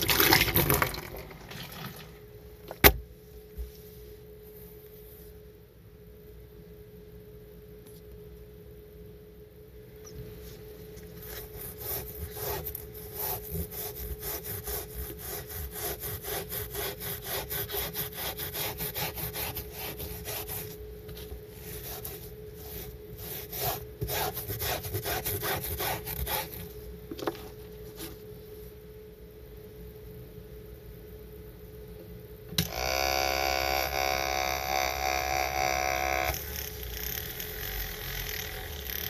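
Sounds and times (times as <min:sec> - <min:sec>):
scrub brush rubbing carpet: 0:11.2 - 0:26.7.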